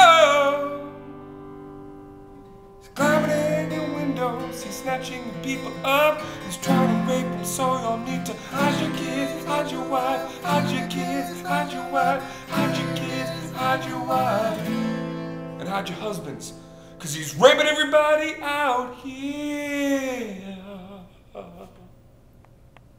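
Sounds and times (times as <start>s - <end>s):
acoustic guitars strumming: 0.0s - 18.9s
men singing: 3.0s - 14.9s.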